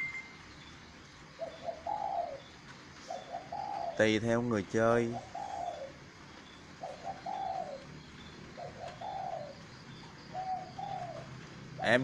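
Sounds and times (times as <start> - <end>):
dove cooing: 1.4 - 4.2, 5.0 - 6.0, 6.8 - 12.0.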